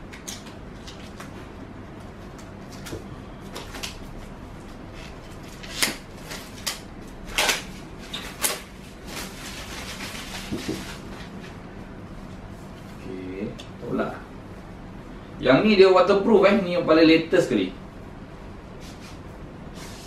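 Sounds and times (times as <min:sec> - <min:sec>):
plastic bag rustling: 0:08.0 - 0:11.5.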